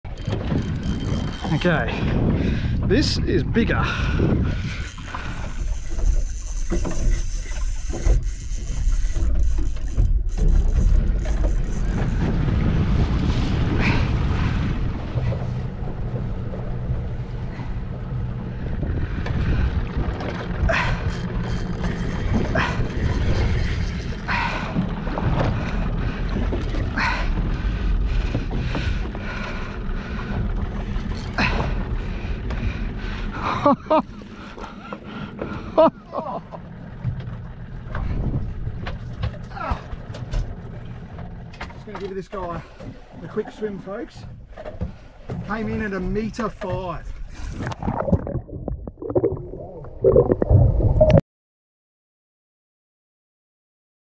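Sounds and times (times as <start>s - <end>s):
boat engine rumble: 0.0s - 51.2s
wind buffeting microphone: 0.1s - 7.0s, 10.5s - 33.4s, 36.5s - 41.1s.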